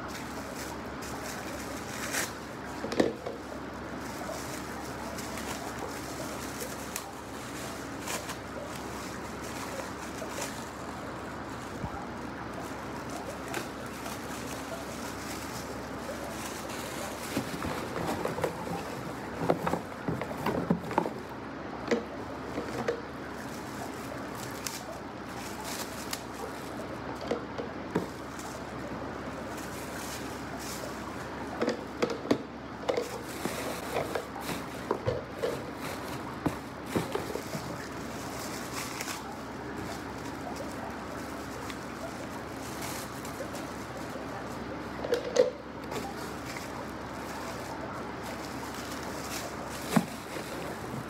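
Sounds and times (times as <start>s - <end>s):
packaging rustling: 0.0s - 21.4s, 32.9s - 51.0s
steady background hiss: 0.0s - 51.0s.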